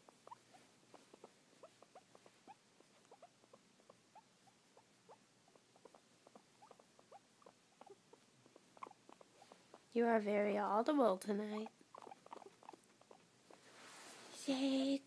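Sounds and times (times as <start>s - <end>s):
guinea pig squeaking: 0.0s - 13.6s.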